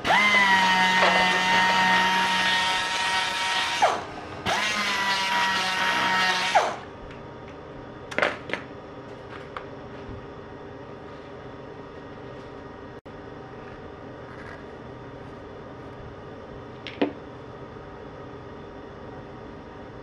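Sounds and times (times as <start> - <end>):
air polishing tool whining: 0.0 - 6.8.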